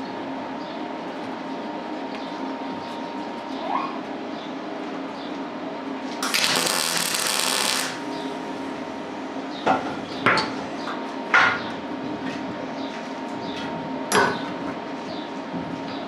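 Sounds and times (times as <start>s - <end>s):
welder arc crackling: 6.2s - 8.1s.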